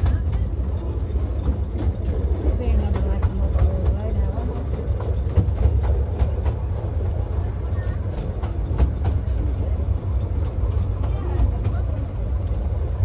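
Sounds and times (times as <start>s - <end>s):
railway carriage rumbling: 0.0s - 13.0s.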